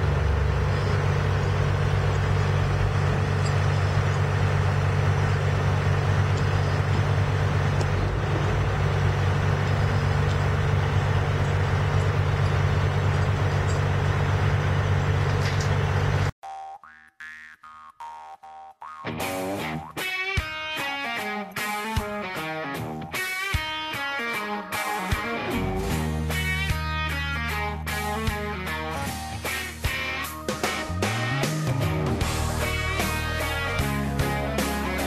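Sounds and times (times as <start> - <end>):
diesel engine low drone: 0.0 - 16.4, 25.4 - 35.0
guitar music: 18.9 - 35.0.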